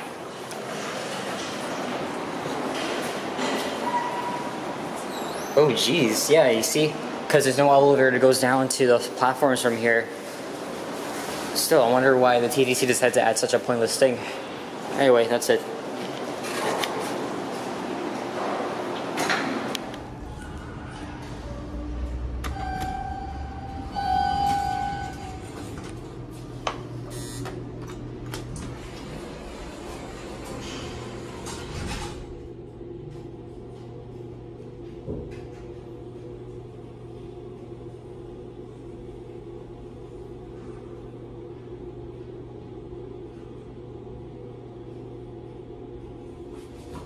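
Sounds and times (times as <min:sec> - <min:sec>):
elevator electronic tone: 0:03.8 - 0:04.7, 0:20.0 - 0:32.1
elevator drive humming: 0:17.0 - 0:47.0.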